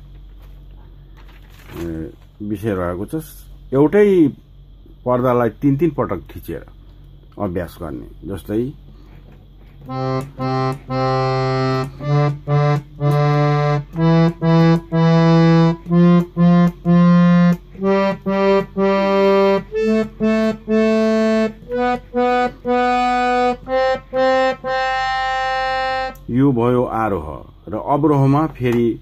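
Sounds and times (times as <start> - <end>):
harmonium playing scale exercise: 9.8 - 27.0.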